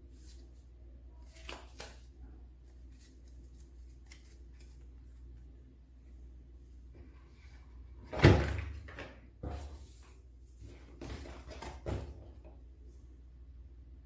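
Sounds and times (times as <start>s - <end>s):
cards rustling: 1.2s - 5.5s.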